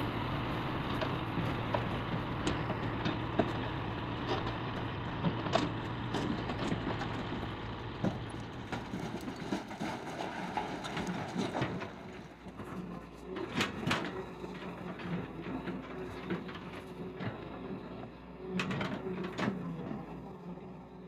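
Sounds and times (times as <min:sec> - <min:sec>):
vehicle engine running: 0:00.0 - 0:13.4.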